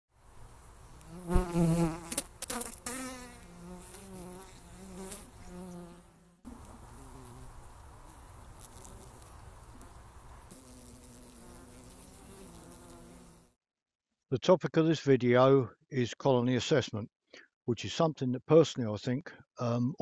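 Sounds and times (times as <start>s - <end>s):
bees buzzing: 0.6s - 13.5s
bee buzzing close to microphone: 0.8s - 13.6s.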